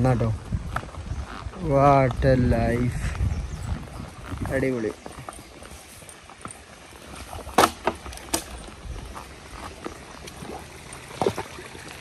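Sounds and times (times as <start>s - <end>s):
water sloshing and splashing: 5.2s - 12.0s.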